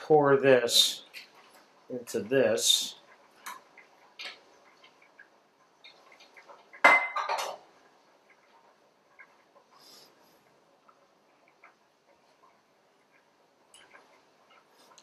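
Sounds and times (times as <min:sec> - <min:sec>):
kitchenware knocking and clinking: 0:06.8 - 0:07.7.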